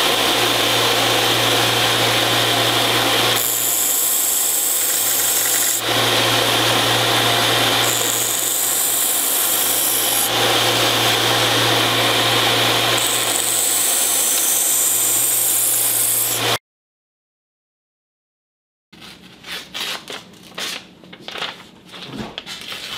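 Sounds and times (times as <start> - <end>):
belt sander motor hum: 0.0 - 16.6
steel blade grinding on belt: 1.7 - 16.5.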